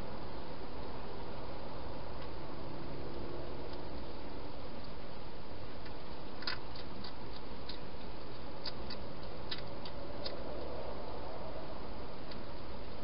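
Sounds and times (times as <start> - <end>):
hedgehog crunching food: 5.8 - 10.8.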